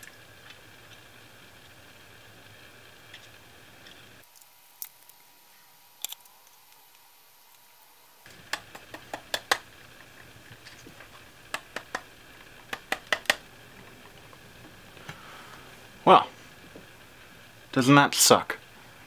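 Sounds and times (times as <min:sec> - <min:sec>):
plastic housing clicking and knocking: 0:12.7 - 0:13.4.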